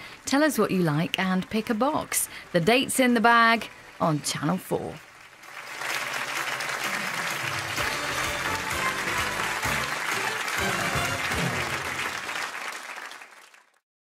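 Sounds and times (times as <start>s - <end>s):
studio audience applauding: 5.0s - 13.8s
closing theme music with bass: 7.7s - 12.2s.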